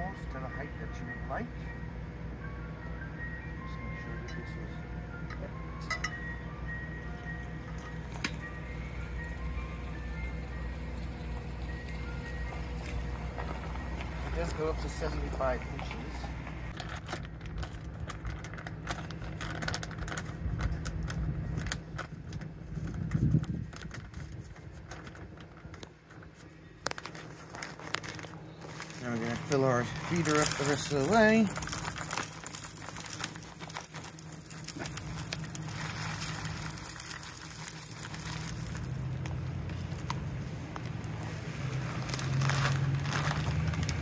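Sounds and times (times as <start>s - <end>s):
low hum: 1.1s - 44.0s
seeds pattering on plastic: 26.8s - 40.2s, 41.7s - 44.0s.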